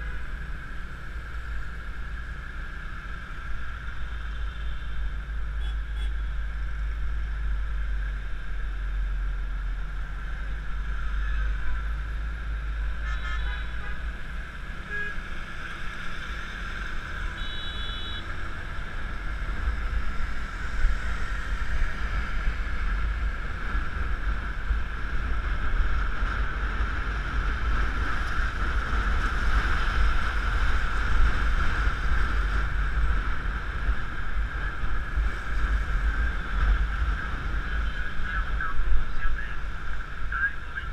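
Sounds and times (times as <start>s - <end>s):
motorbikes passing: 0.0s - 40.9s
horn beep: 17.3s - 18.3s.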